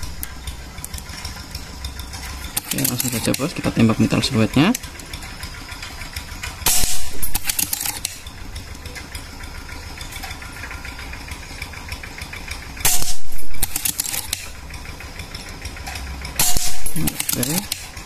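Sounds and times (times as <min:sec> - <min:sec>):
steady low hum: 0:00.0 - 0:18.0
air rifle shots: 0:06.6 - 0:08.2, 0:12.8 - 0:14.4, 0:16.4 - 0:17.9
pellet striking steel target: 0:06.6 - 0:08.3, 0:12.8 - 0:14.5, 0:16.4 - 0:18.0.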